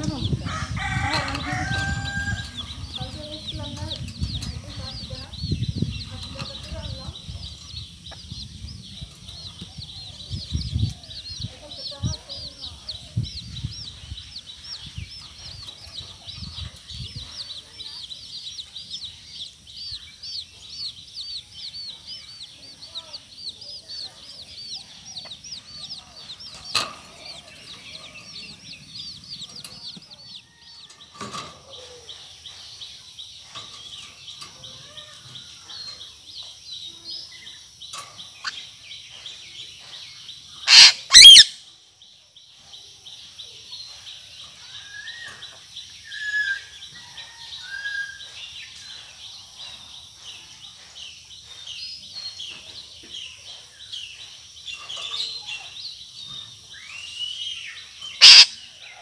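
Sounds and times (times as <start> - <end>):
soft bird calls: 0.0 - 59.0
parrot squawks: 40.7 - 41.6, 58.2 - 58.6.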